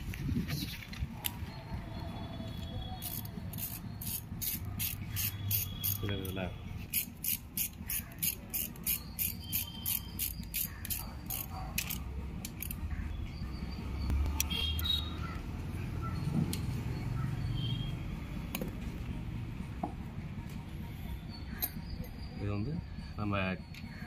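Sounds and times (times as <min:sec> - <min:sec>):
ratchet wrench clicking: 0:03.0 - 0:12.8
metal tools clinking: 0:21.5 - 0:22.2.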